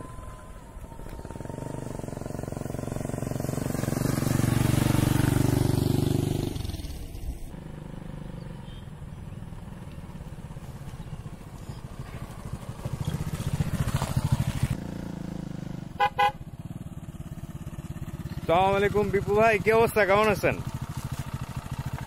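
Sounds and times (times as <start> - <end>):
moped engine approaching: 0.0 - 22.0
motorcycle engine running: 0.0 - 22.0
horn beeps: 16.0 - 16.4.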